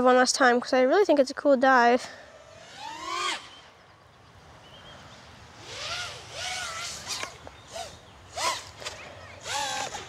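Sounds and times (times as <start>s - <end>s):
drone motors whining: 2.1s - 10.0s.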